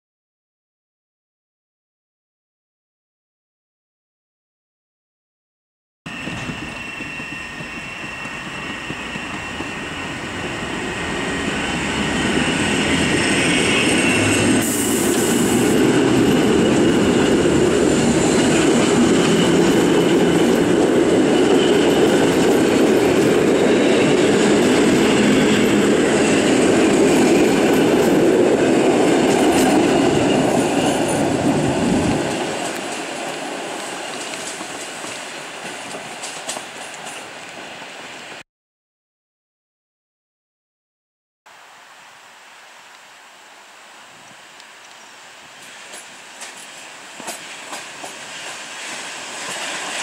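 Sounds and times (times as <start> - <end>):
electric train passing: 6.1 - 38.4, 43.5 - 50.0
brief hiss: 14.6 - 15.7.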